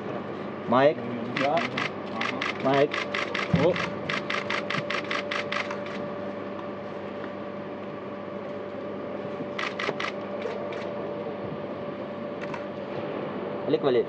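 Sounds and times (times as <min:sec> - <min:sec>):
steady hum: 0:00.0 - 0:14.0
camera shutters clicking: 0:01.4 - 0:06.0, 0:09.6 - 0:10.9.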